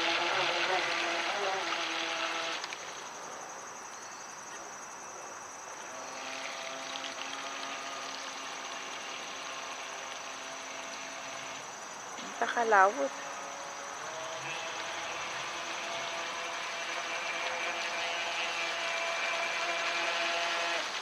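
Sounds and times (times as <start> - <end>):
electric boat motor whining: 0.0 - 3.0, 5.7 - 21.0.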